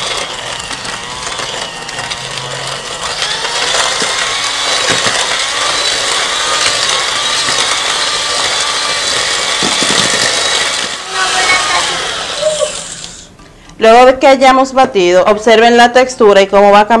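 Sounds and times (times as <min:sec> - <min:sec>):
electric hand mixer whirring: 0:00.0 - 0:13.4.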